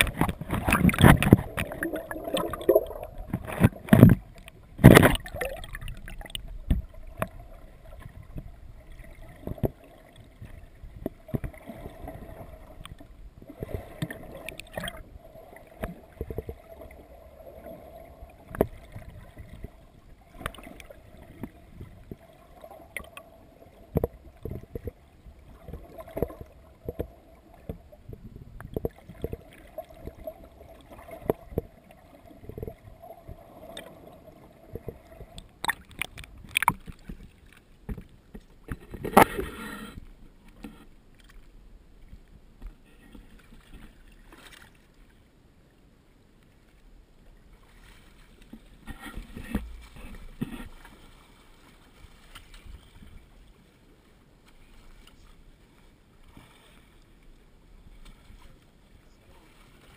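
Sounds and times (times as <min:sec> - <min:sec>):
splash: 0:00.0 - 0:08.1, 0:13.4 - 0:16.9
water sloshing: 0:00.0 - 0:45.0, 0:47.6 - 0:53.8
muffled underwater knocks: 0:03.2 - 0:05.6, 0:06.2 - 0:07.4.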